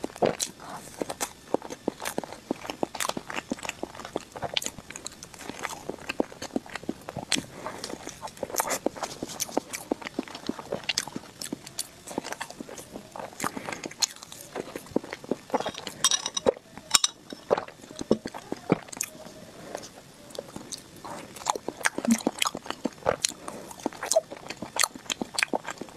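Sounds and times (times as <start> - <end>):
biting and chewing: 0.0 - 25.9.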